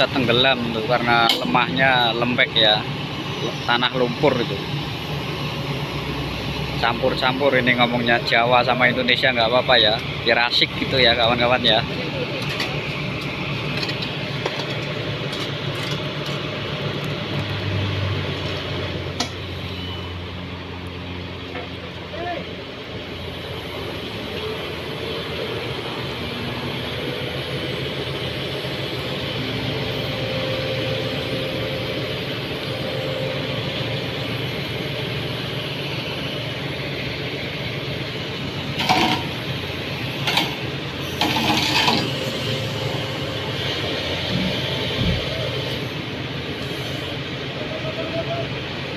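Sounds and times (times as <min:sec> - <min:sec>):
excavator diesel engine running: 0:00.0 - 0:48.9.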